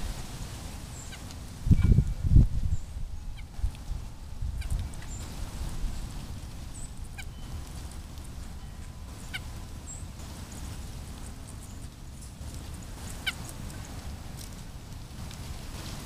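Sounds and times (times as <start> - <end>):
songbird call notes: 0.7 - 5.4, 6.1 - 10.6.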